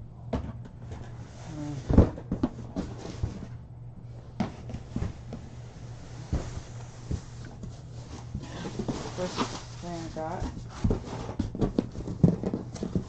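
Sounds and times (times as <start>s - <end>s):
low steady hum: 0.0s - 13.0s
cardboard boxes knocking and thudding: 0.3s - 3.6s, 4.4s - 5.4s, 8.2s - 13.0s.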